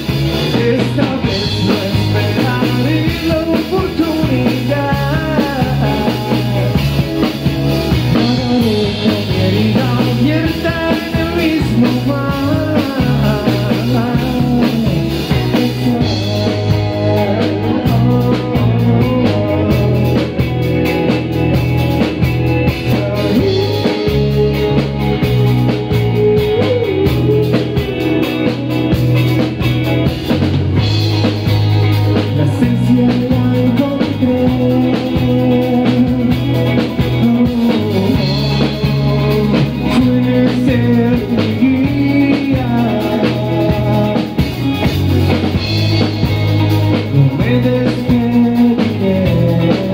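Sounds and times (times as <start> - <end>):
drum kit: 0.0 - 49.9
electric bass: 0.0 - 49.9
electric guitar: 0.0 - 49.9.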